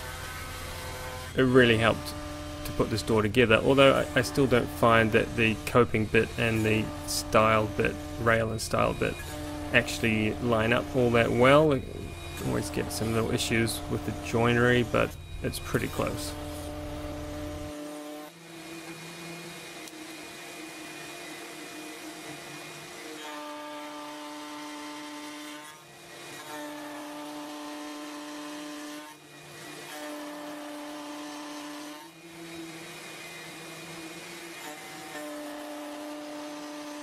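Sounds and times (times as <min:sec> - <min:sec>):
router whining while cutting wood: 0:00.0 - 0:37.0.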